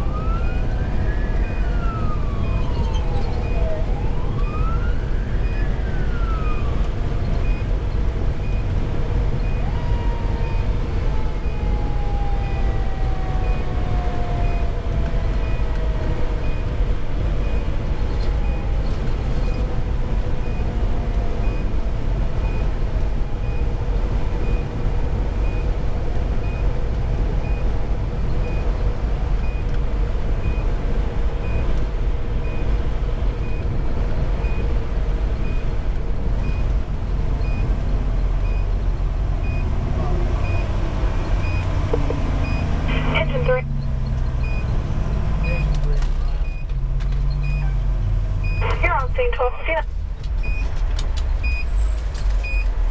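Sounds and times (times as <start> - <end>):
siren wail: 0.0 - 7.6, 9.3 - 16.7
diesel engine and road drone: 0.0 - 52.9.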